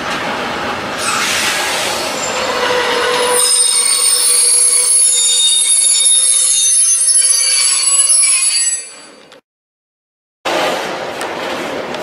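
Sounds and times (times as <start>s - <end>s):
train wheels squealing: 1.0s - 9.2s.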